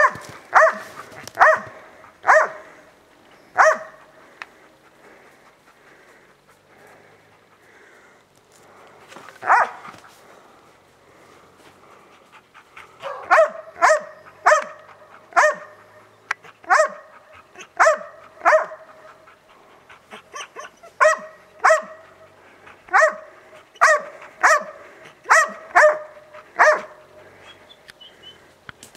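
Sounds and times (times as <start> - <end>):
dog barking: 0.0 - 2.7, 3.6 - 4.0, 9.4 - 9.9, 13.0 - 19.0, 20.3 - 22.2, 22.9 - 27.0.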